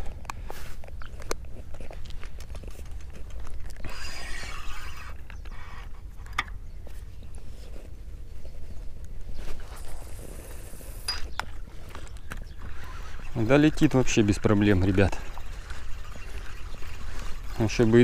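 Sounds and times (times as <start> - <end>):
fishing reel clicks: 3.8 - 5.9, 12.3 - 18.0
fishing line hiss: 9.5 - 11.1.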